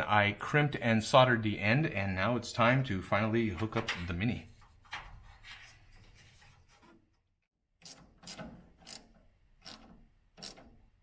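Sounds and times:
wrench scraping on nut: 7.8s - 11.0s.

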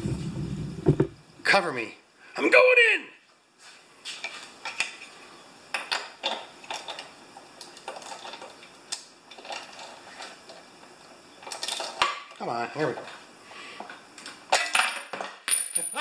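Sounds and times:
socket wrench metallic clinks: 14.8s - 16.0s.

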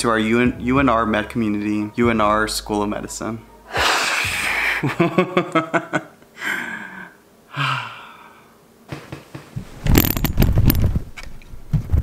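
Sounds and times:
camera handling clicks and bumps: 9.9s - 11.4s.

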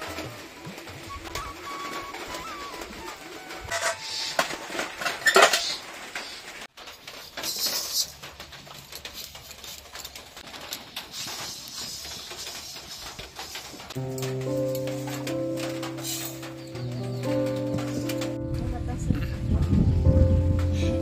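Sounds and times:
metal dishes clattering: 3.7s - 5.9s.

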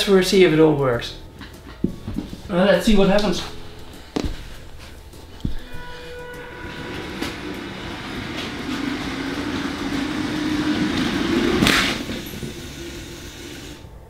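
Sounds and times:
toy train motor whine: 6.3s - 13.9s.

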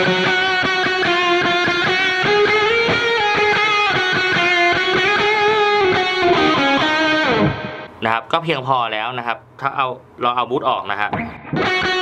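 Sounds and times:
distorted electric guitar: 0.0s - 8.0s, 11.1s - 12.0s.

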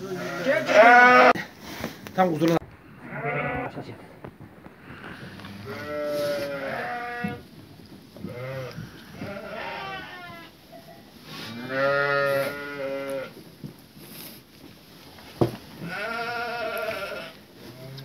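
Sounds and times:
sheep bleating: 0.0s - 1.4s, 3.0s - 3.8s, 5.2s - 7.4s, 8.2s - 10.5s, 11.5s - 13.3s, 15.8s - 18.0s.

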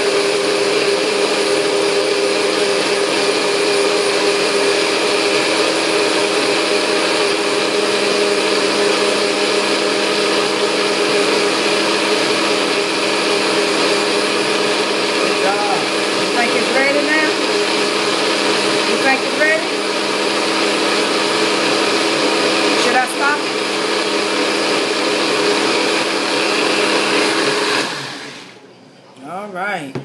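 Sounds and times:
blender running: 0.0s - 28.6s.

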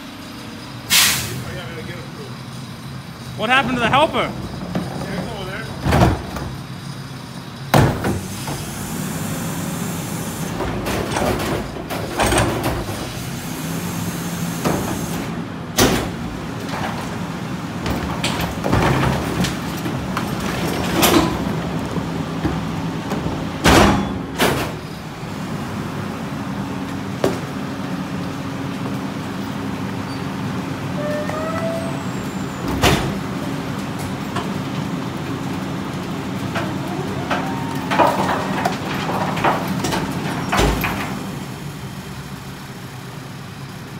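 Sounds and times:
garbage truck engine and hydraulics: 0.0s - 43.9s
carts banging against hopper: 3.6s - 6.6s, 10.5s - 13.1s, 15.7s - 24.9s, 35.5s - 41.4s.

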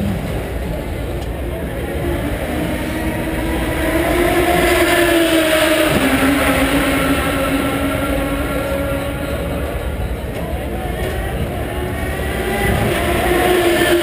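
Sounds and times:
race car engine passing: 0.0s - 14.0s.

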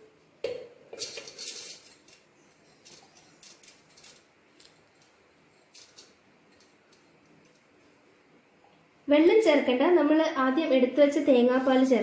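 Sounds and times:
utensils scraping and clicking: 1.0s - 8.0s.

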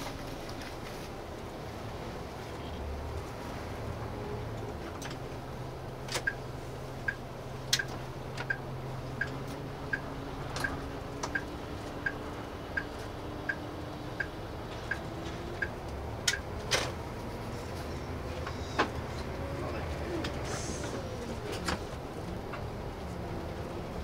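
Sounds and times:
diesel engine hum: 0.0s - 24.0s
turn signal ticking: 6.0s - 16.6s.

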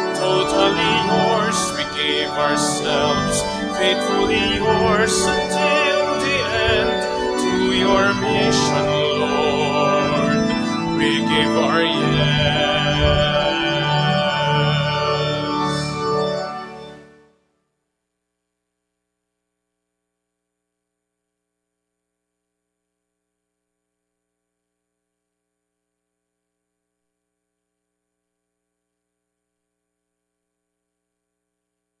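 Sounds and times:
church organ chord: 0.0s - 17.4s.

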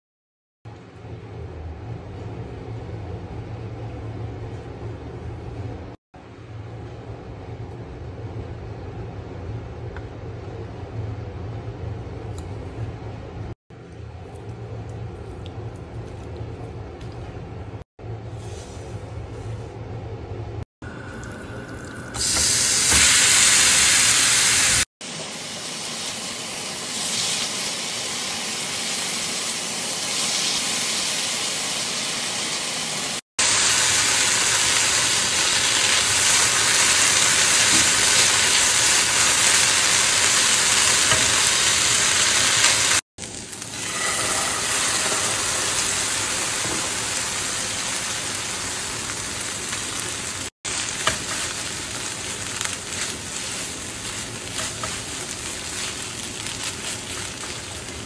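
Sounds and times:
chicken sizzling in a frying pan: 22.2s - 58.0s.

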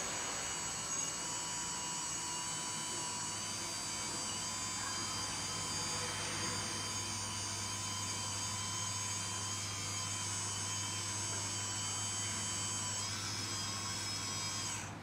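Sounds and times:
electric hydraulic pump whining: 0.0s - 15.0s.

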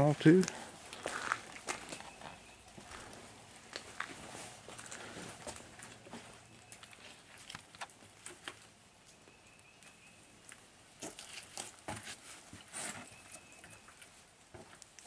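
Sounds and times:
footsteps on dirt trail: 0.4s - 7.6s.

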